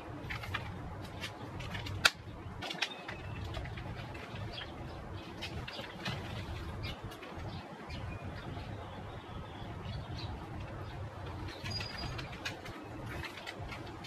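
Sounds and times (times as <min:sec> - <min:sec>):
clicks and knocks of objects handled: 0:00.2 - 0:07.5, 0:10.6 - 0:14.0.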